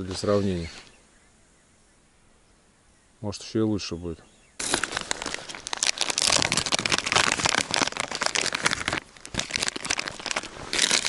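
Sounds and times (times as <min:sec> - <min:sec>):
plastic packet crinkling: 0:04.6 - 0:11.0.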